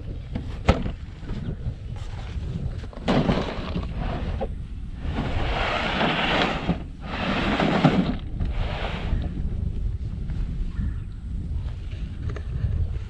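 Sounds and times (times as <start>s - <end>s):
wind rumbling on microphone: 0.0s - 13.0s
cooler scraping and handling: 0.3s - 9.3s.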